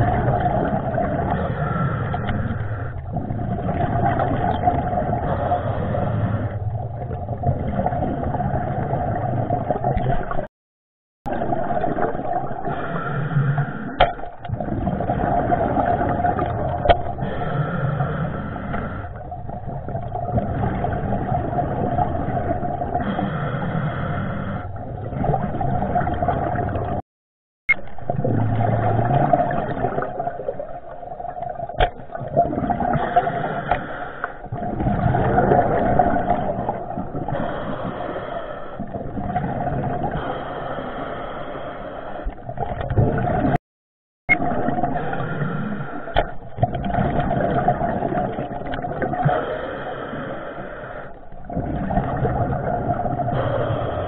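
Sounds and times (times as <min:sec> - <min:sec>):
muffled underwater noise: 0:00.0 - 0:10.4, 0:44.3 - 0:54.0.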